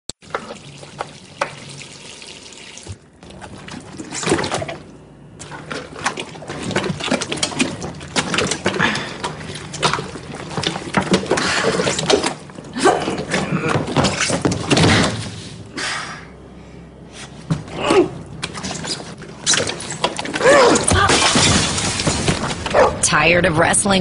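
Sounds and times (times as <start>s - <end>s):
tap water running into sink: 0.2s - 3.0s.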